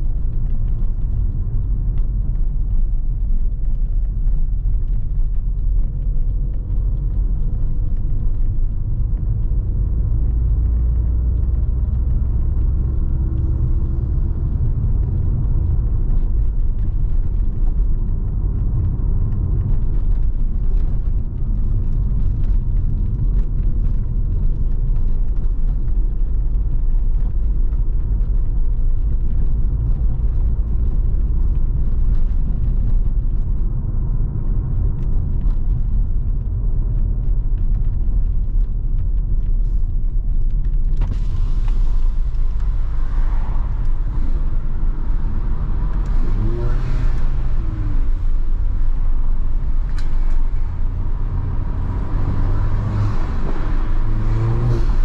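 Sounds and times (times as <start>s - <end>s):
car engine rumble: 0.0s - 55.0s
road noise: 0.0s - 55.0s.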